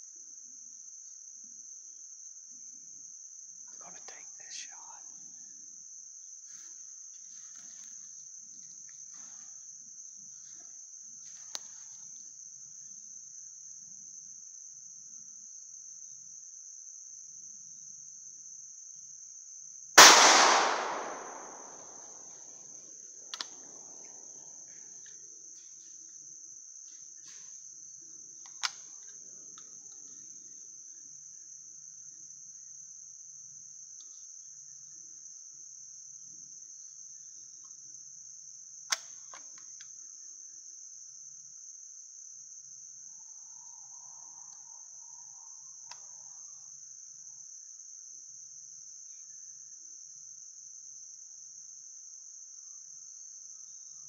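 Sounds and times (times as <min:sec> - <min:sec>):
insects droning: 0:00.0 - 0:54.0
shotgun shot echoing: 0:20.0 - 0:22.1.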